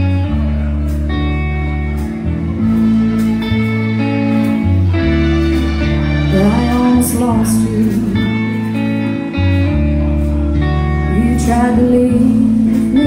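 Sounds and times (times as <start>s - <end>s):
bass notes: 0.0s - 13.0s
drums: 0.0s - 13.0s
electric guitar chords: 0.0s - 13.0s
woman singing lead vocal: 6.2s - 8.7s, 11.0s - 13.0s.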